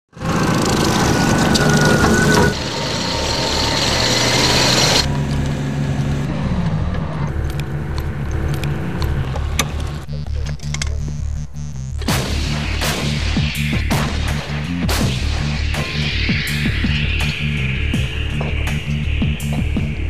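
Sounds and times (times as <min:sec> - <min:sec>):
tracked vehicle engine running: 0:00.1 - 0:11.9
tracks clattering: 0:00.2 - 0:11.0.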